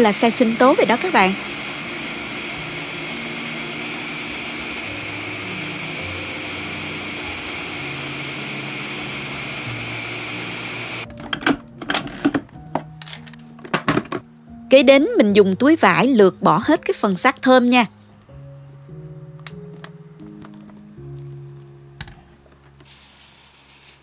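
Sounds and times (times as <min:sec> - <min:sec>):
blender running: 0:00.0 - 0:11.1
knocks and clicks: 0:11.1 - 0:14.3.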